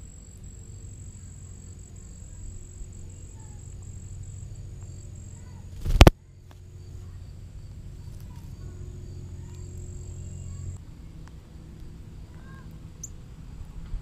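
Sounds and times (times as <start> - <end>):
low hum of distant engine: 0.0 - 14.0
faint bird chirps: 0.4 - 10.8.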